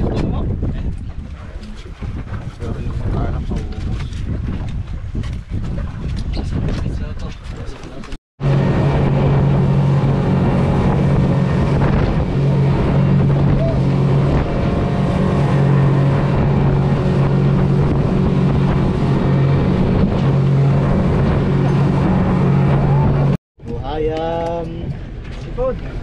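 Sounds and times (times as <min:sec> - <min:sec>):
wind buffeting microphone: 0:00.0 - 0:26.0
motorboat engine droning: 0:08.4 - 0:26.0.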